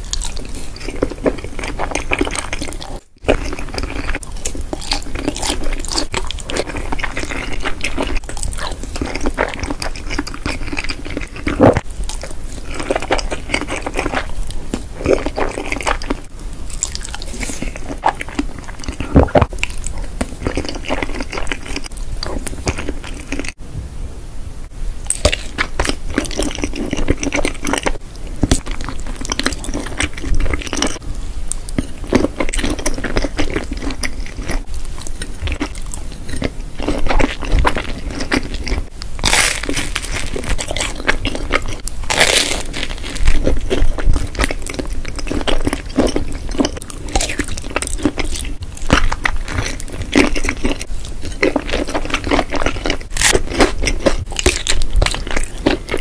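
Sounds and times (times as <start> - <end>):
crunchy chewing: 0.0 - 23.6, 25.1 - 56.0.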